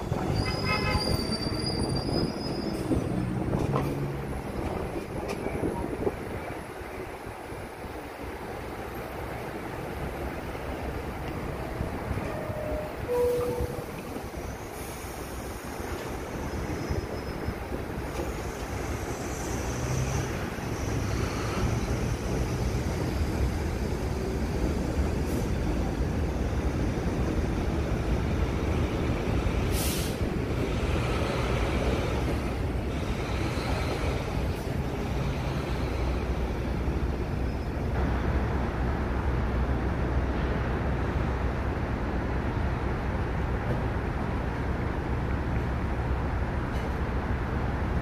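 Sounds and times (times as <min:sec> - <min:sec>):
subway train rumbling on tracks: 0:00.0 - 0:48.0
sharp hiss: 0:29.7 - 0:30.3.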